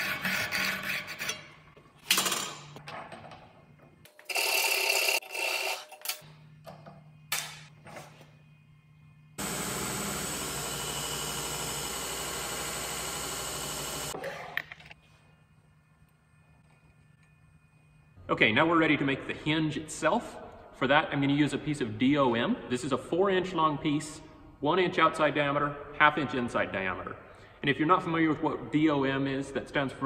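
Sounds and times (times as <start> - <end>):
belt grinder grinding steel: 4.2 - 6.2
motor hum: 8.4 - 14.6.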